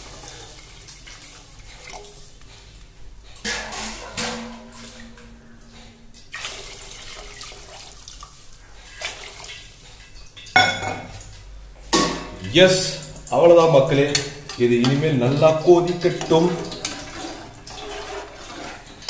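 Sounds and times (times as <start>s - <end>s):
water pouring into a pot: 6.3s - 9.9s, 15.4s - 19.0s.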